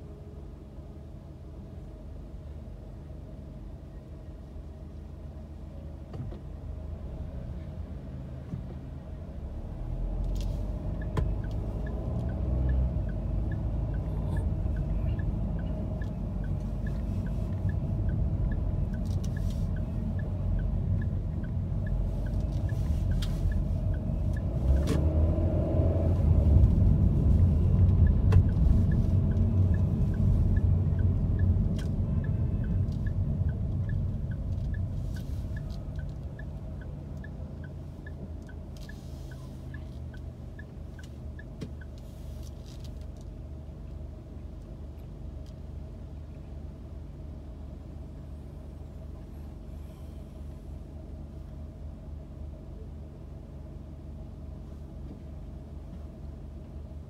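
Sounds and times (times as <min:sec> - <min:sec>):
car engine and road rumble: 0:00.0 - 0:57.0
light regular ticking: 0:10.2 - 0:24.9, 0:26.0 - 0:43.3.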